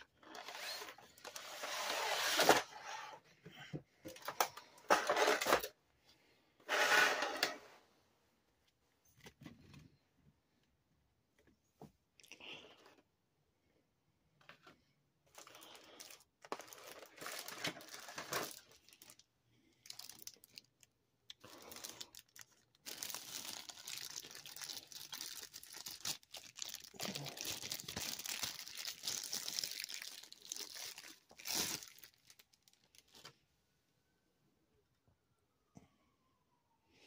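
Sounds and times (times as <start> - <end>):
plastic bag crinkling: 15.3 - 33.4.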